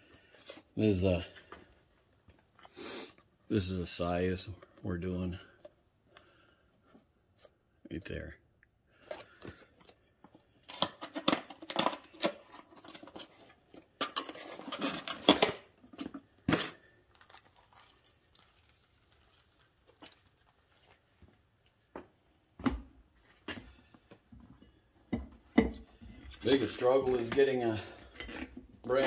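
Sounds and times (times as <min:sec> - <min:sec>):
packaging scraping and crinkling: 0:10.6 - 0:15.8, 0:16.4 - 0:21.0.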